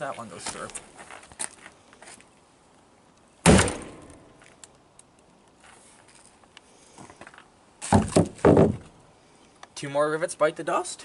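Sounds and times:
axe striking steel plate: 0:03.5 - 0:04.3.

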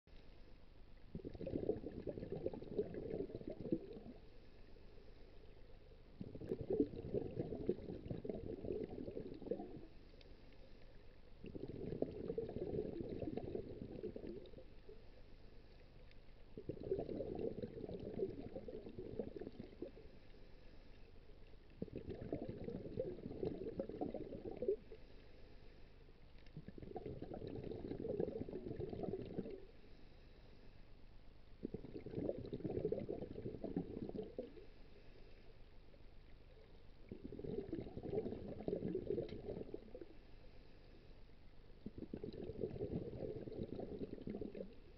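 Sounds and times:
exhaled bubbles underwater: 0:00.9 - 0:04.4, 0:05.4 - 0:10.3, 0:11.0 - 0:15.1, 0:15.7 - 0:20.3, 0:21.3 - 0:25.0, 0:26.3 - 0:29.8, 0:31.4 - 0:34.8, 0:35.8 - 0:40.3, 0:41.5 - 0:44.9.

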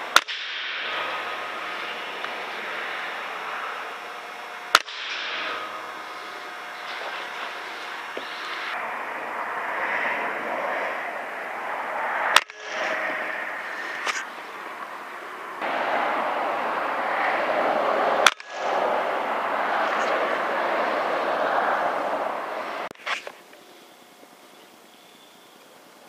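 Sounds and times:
steady background hiss: 0:00.0 - 0:26.0
air rifle shots: 0:00.1 - 0:08.8, 0:12.2 - 0:16.2, 0:18.0 - 0:21.7.

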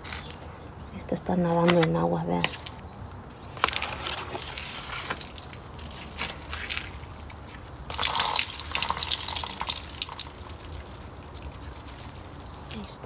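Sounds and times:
rainwater dripping: 0:05.0 - 0:12.6
stream of water splashing: 0:06.5 - 0:12.5.

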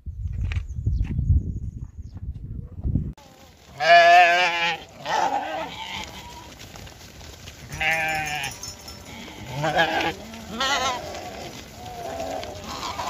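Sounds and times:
goat bleating: 0:03.2 - 0:06.6, 0:07.7 - 0:13.0.

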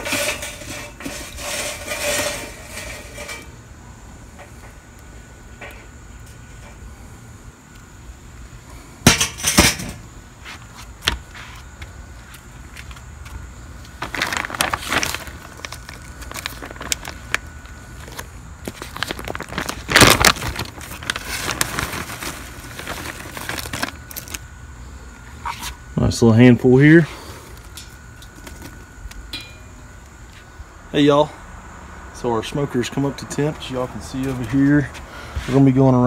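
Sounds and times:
wood chips rattling: 0:00.0 - 0:03.5, 0:13.9 - 0:17.4, 0:18.0 - 0:24.4
plastic bag crinkling: 0:13.9 - 0:24.4.

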